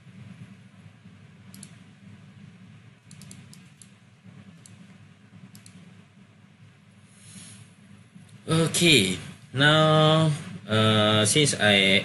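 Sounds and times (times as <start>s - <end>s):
low hum: 0.0s - 12.0s
keyboard and mouse clicks: 1.5s - 1.8s, 3.0s - 4.8s, 5.5s - 5.8s.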